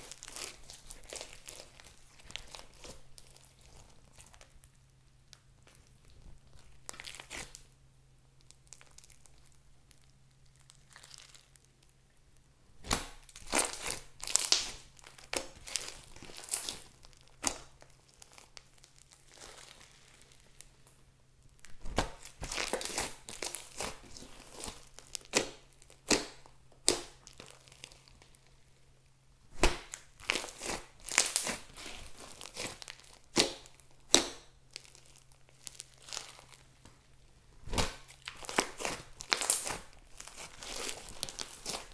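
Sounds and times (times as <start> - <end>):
slime crackling and popping: 0.0 - 41.9.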